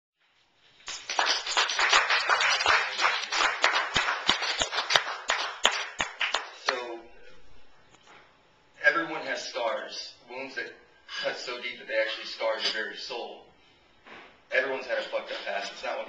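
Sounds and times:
small audience clapping: 0.8 - 7.0.

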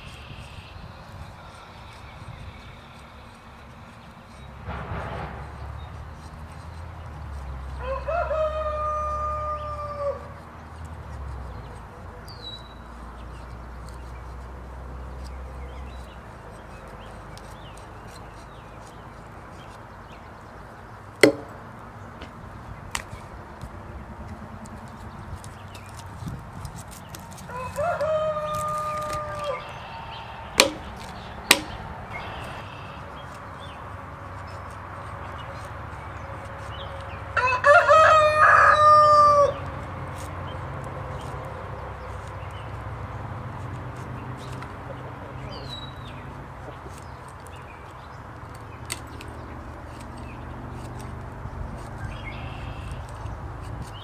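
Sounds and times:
bird chirping: 0.0 - 4.6, 10.8 - 14.5, 24.6 - 37.3, 44.2 - 51.2, 51.8 - 54.0
knife scraping wooden stick: 0.0 - 54.0
rooster crowing: 7.8 - 10.4, 27.5 - 29.8, 37.4 - 39.6
sharp knocks: 21.2 - 22.4, 30.6 - 31.8.

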